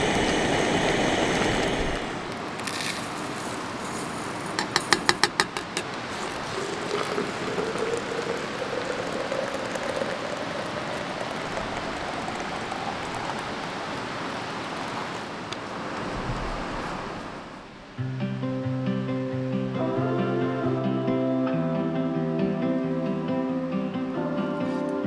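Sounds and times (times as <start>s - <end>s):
water pouring into mug: 0.0s - 15.0s
grinder knocking on metal mug: 4.5s - 6.0s.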